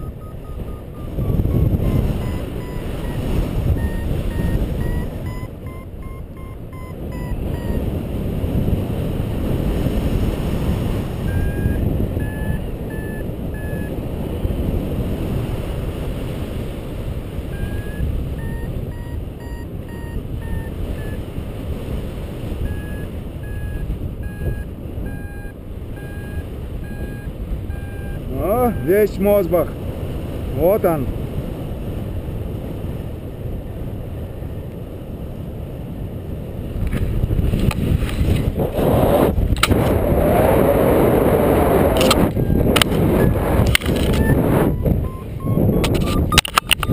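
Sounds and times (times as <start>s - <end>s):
variometer beeping: 0.0s - 7.9s, 11.2s - 14.0s, 17.5s - 21.3s, 22.6s - 29.6s, 41.5s - 46.9s
wind rushing over microphone: 0.0s - 46.9s.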